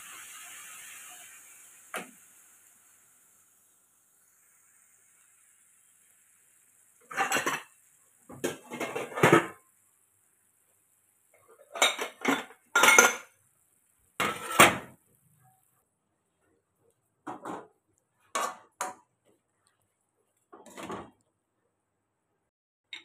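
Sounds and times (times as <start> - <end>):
spatula scraping a wok: 7.0 - 7.8, 14.2 - 14.9.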